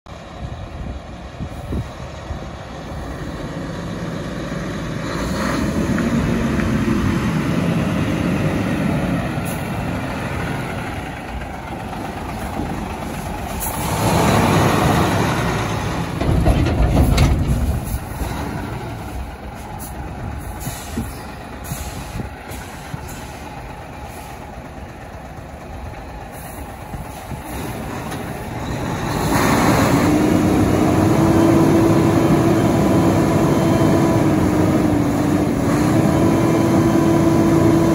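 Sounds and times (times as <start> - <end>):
truck diesel engine running: 0.1 - 37.9
air brakes hissing: 19.6 - 24.5.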